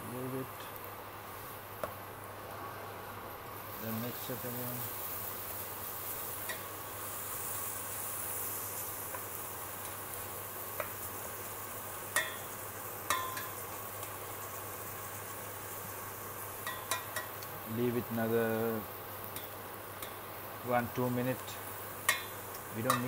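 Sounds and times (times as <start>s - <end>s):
vegetables sizzling in oil: 0.0s - 23.0s
spatula stirring: 22.1s - 23.0s.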